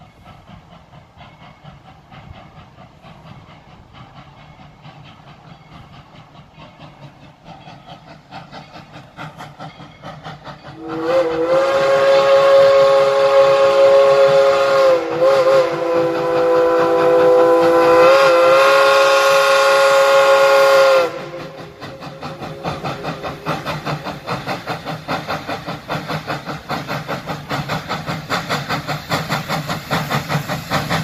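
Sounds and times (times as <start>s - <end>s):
steam locomotive chuffing: 0.0s - 31.0s
steam whistle blowing: 10.6s - 23.3s.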